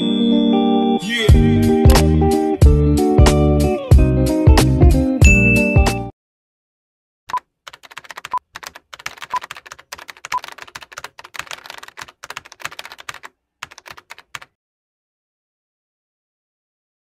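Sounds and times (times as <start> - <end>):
keyboard key clicks: 7.3 - 14.5.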